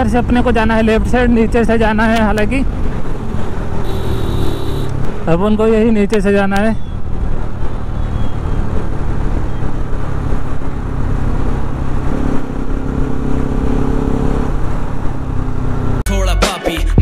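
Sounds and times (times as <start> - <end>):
motorcycle engine running: 0.0 - 5.5
traffic: 0.0 - 16.1.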